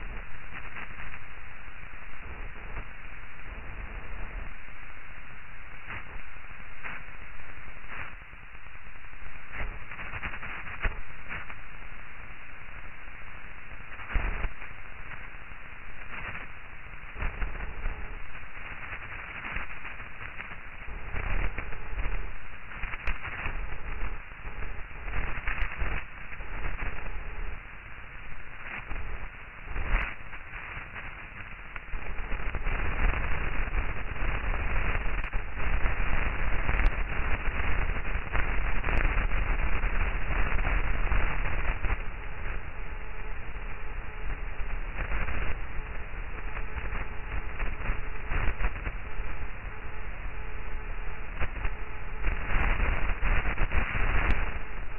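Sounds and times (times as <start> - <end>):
crackling static hiss: 0.0 - 54.9
sharp clicks and pops: 22.8 - 24.0, 25.3 - 27.0, 34.7 - 39.5, 52.6 - 54.8.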